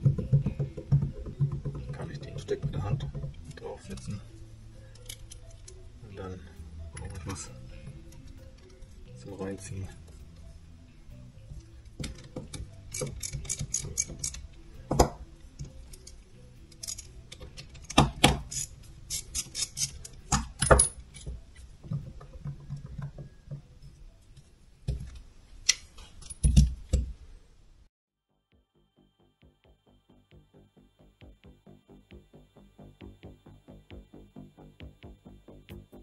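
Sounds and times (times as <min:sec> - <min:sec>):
metal tools clinking: 0:12.0 - 0:14.4, 0:15.6 - 0:21.4
ratchet clicks: 0:12.0 - 0:14.4.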